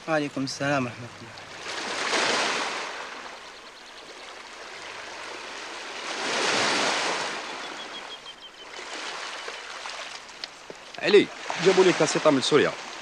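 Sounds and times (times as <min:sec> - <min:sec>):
surf hissing: 0:11.0 - 0:13.0.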